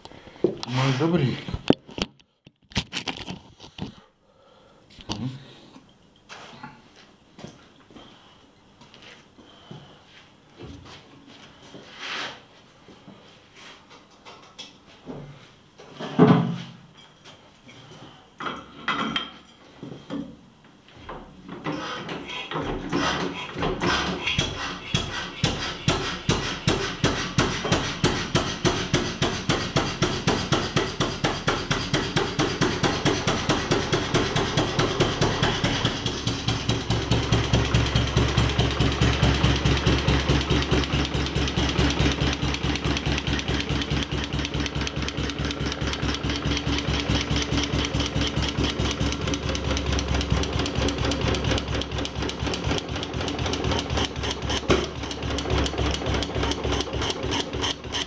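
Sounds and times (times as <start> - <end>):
stationary engine running: 31.7 - 58.0.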